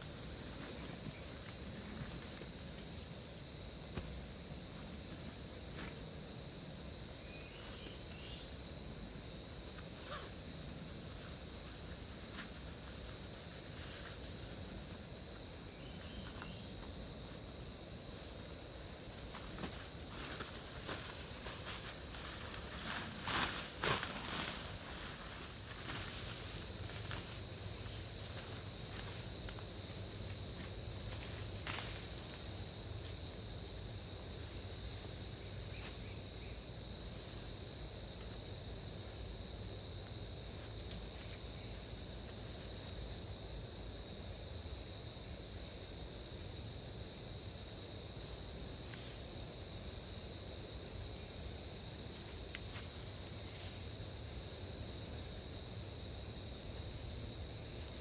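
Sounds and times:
insects buzzing drone: 0:00.0 - 0:58.0
insect rapidly pulsing call: 0:09.7 - 0:17.2.

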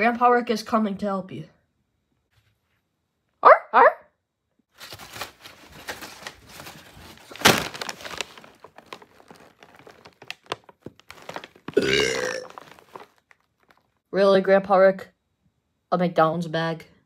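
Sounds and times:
paper bag crinkling: 0:04.7 - 0:14.0.

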